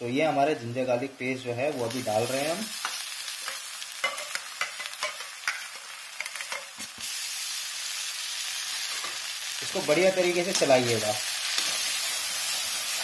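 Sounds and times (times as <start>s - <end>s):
hot oil sizzling in a pan: 0.0s - 13.0s
spoon clicking on metal pan: 2.8s - 6.7s.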